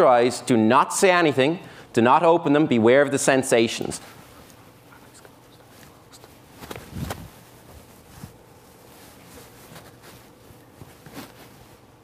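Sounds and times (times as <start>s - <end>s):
faint shuffles and steps: 3.8s - 12.0s.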